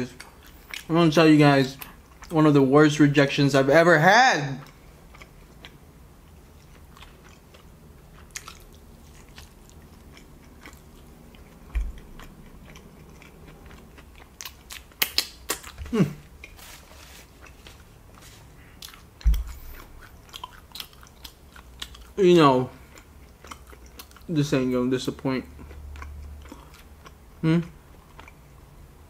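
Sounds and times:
wet chewing mouth smacks: 0:06.6 - 0:16.6.

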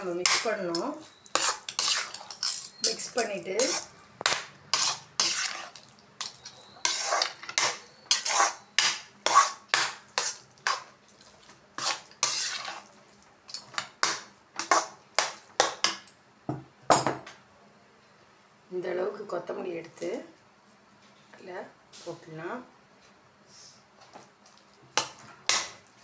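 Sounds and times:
metal spatula scraping a pan: 0:00.0 - 0:03.9, 0:04.7 - 0:11.0, 0:11.8 - 0:12.9, 0:13.8 - 0:15.3.

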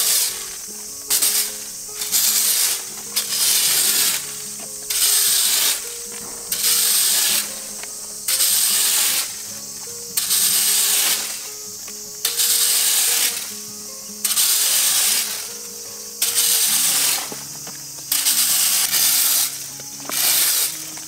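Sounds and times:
faint background music: 0:00.0 - 0:21.0
rake scraping leaves on road: 0:00.0 - 0:21.0.

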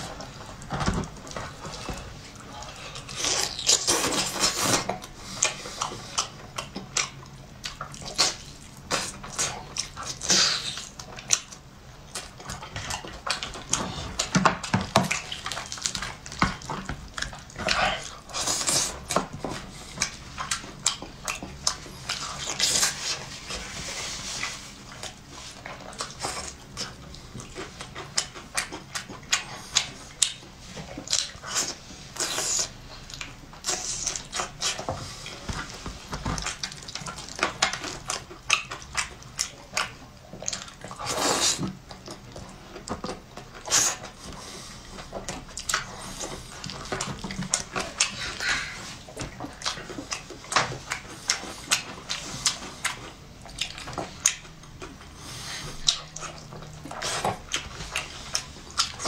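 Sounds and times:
wet chewing and lip-smacking: 0:00.0 - 0:59.0.

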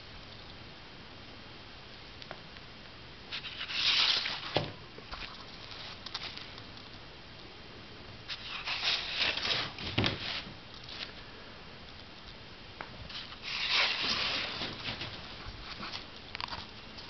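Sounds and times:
rustling handling noise: 0:03.3 - 0:07.0, 0:08.3 - 0:11.3, 0:12.9 - 0:17.0
light clicks and crackles: 0:05.0 - 0:07.5, 0:10.7 - 0:13.4.

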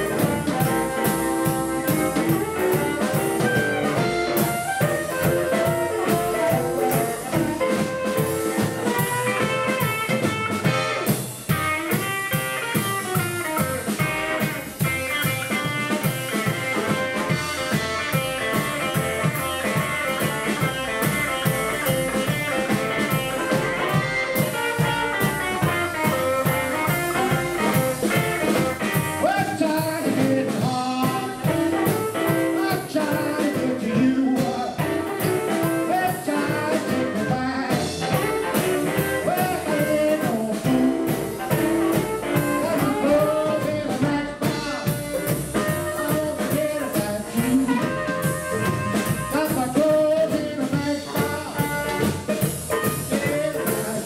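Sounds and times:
double bass: 0:00.0 - 0:11.7, 0:13.2 - 0:32.1, 0:33.0 - 0:54.0
drum kit beat: 0:00.0 - 0:54.0
electric guitar: 0:00.0 - 0:54.0
man singing: 0:25.9 - 0:54.0.

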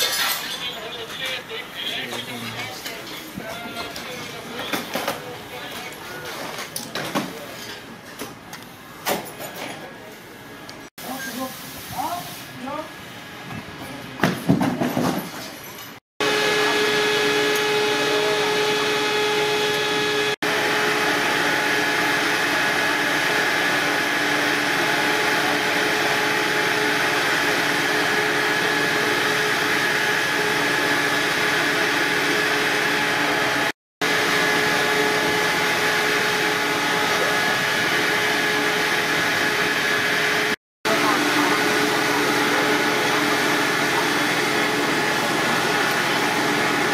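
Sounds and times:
ventilation fan droning: 0:17.1 - 0:46.9.

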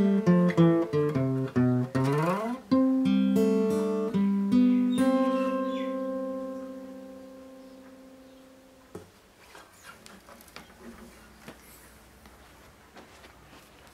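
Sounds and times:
acoustic guitar chord ringing: 0:00.0 - 0:09.0
guitar handling clicks and rustles: 0:08.9 - 0:13.9.

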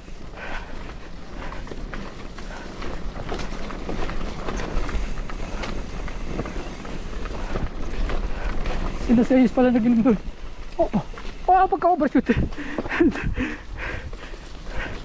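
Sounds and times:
bike chain and frame rattling: 0:00.0 - 0:15.0
bike tyre noise: 0:00.0 - 0:15.0
wind rumble on microphone: 0:12.3 - 0:15.0.

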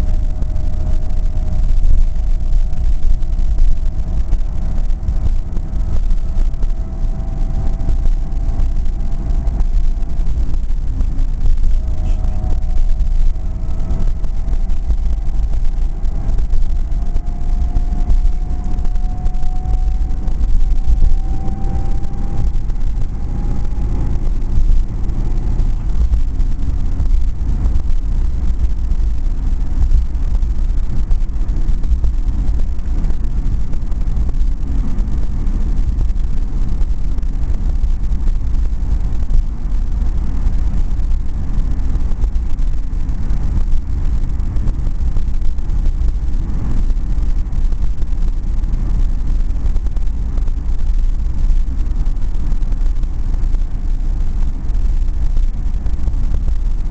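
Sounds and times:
car engine and road noise rumble: 0:00.0 - 0:56.9.

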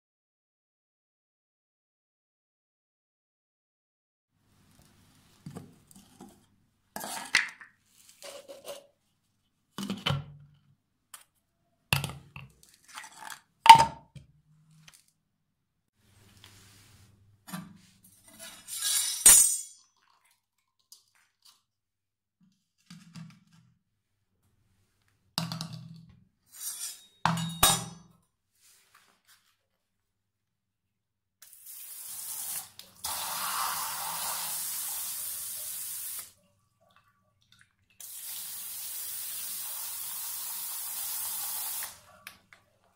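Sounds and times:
scrape on tile: 0:07.0 - 0:08.9, 0:16.4 - 0:19.3, 0:26.5 - 0:27.1.

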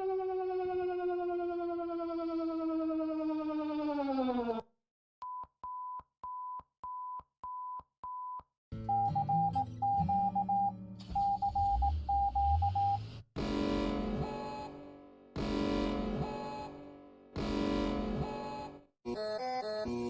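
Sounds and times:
short alert beeps: 0:06.4 - 0:13.0.

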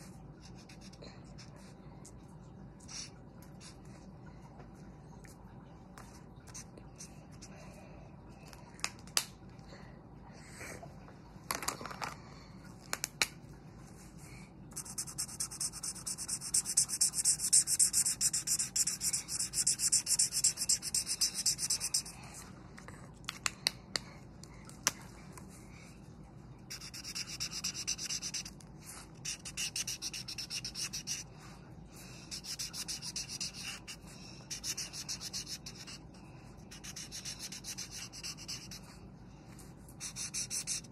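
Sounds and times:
marker scribbling on paper: 0:14.8 - 0:22.2, 0:26.7 - 0:31.3, 0:32.3 - 0:36.0, 0:36.7 - 0:38.9, 0:40.0 - 0:40.9.

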